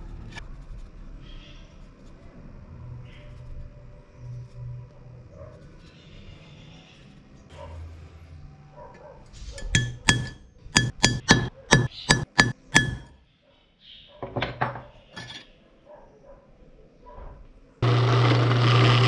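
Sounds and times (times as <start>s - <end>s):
metal tool striking steel plate: 9.6s - 13.2s.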